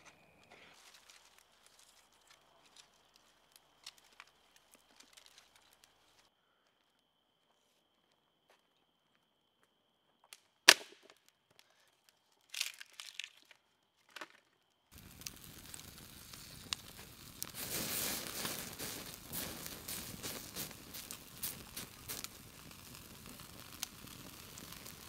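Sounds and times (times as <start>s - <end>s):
campfire crackling: 0.0s - 6.3s, 14.9s - 25.0s
sticks rustling and scraping: 0.0s - 6.3s, 12.0s - 14.4s
sharp crack: 10.6s - 11.2s, 15.0s - 25.0s
steady hiss: 15.0s - 25.0s.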